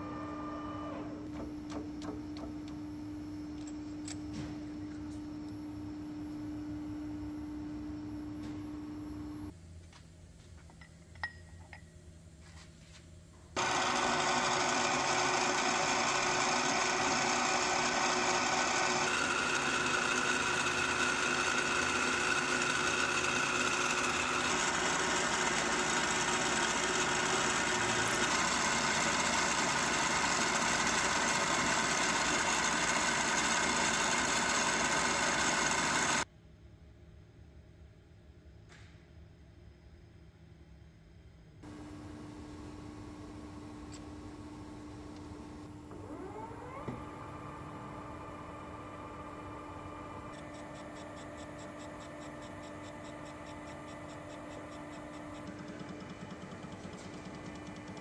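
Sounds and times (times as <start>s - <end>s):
drill bit cutting steel: 13.6s - 36.2s
machine hum: 41.6s - 58.0s.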